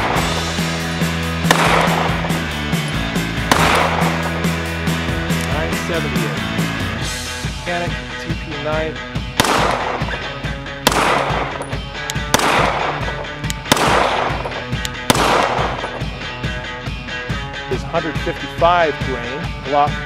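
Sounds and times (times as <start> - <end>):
background music: 0.0 - 20.0
pistol shots: 1.4 - 2.6, 3.5 - 4.7, 9.4 - 16.2.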